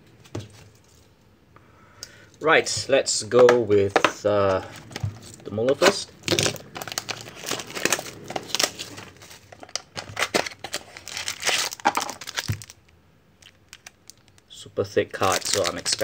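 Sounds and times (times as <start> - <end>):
card pack wrapper tearing and crinkling: 4.6 - 14.4, 15.1 - 16.0.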